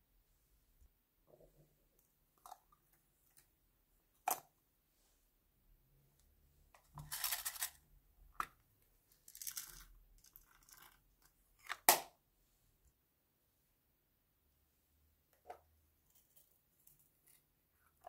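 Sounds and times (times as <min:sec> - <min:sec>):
plastic packaging rustling: 0:07.0 - 0:07.8.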